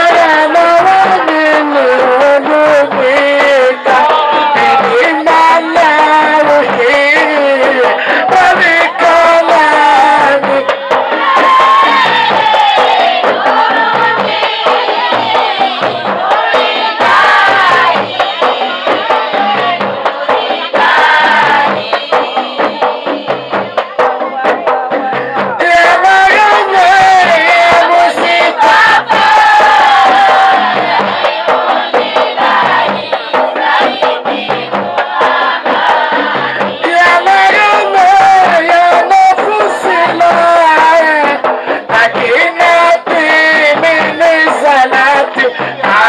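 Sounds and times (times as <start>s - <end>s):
man singing into microphone: 0.0s - 11.0s, 23.9s - 30.8s, 36.5s - 46.0s
group of voices singing: 0.0s - 46.0s
rhythmic percussion: 0.0s - 46.0s.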